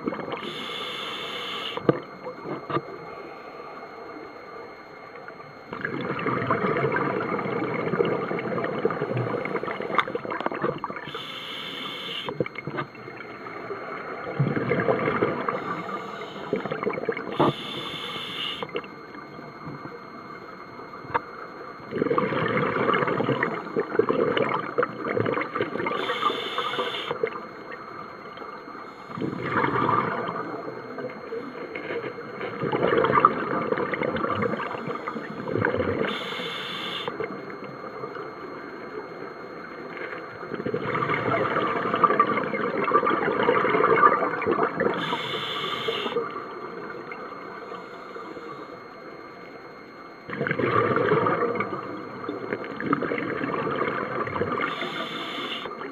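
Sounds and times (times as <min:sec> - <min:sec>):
gurgling exhaled bubbles underwater: 0:00.0 - 0:03.1, 0:05.6 - 0:20.2, 0:20.9 - 0:47.7, 0:50.1 - 0:55.9
regulator inhalation hiss: 0:00.4 - 0:01.8, 0:11.1 - 0:12.3, 0:17.4 - 0:18.6, 0:26.0 - 0:27.2, 0:36.1 - 0:37.1, 0:45.0 - 0:46.2, 0:54.6 - 0:55.7.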